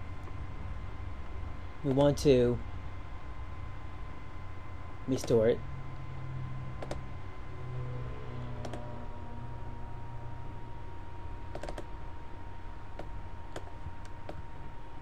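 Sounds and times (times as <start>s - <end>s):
faint high whine: 0.0s - 15.0s
low hum: 0.0s - 15.0s
computer mouse clicks: 6.8s - 7.0s, 8.6s - 8.9s, 11.5s - 11.9s, 13.0s - 14.4s.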